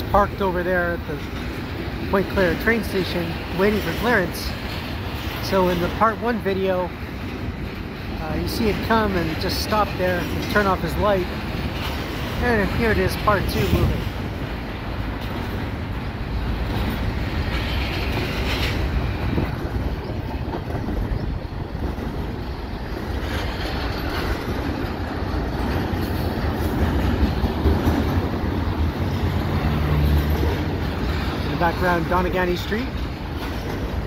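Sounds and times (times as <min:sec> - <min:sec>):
train wheels rolling on rails: 0:00.0 - 0:34.0.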